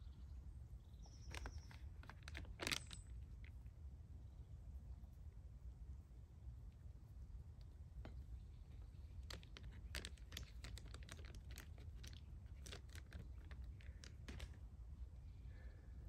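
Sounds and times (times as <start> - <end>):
packaging crinkling: 1.2 - 3.1, 9.2 - 14.6.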